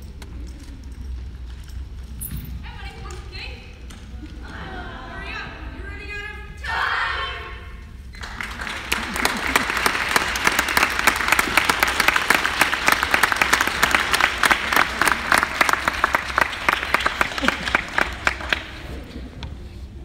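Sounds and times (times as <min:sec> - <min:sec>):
audience clapping: 0:08.2 - 0:19.3.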